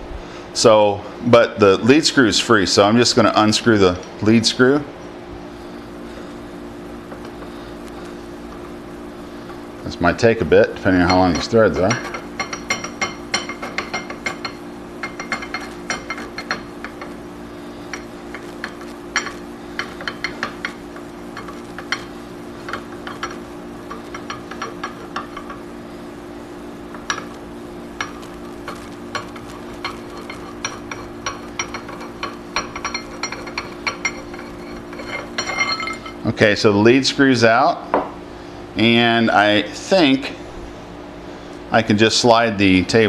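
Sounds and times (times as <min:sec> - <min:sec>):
steady low hum: 0:00.0 - 0:43.0
metallic clicks and scrapes: 0:28.0 - 0:36.2.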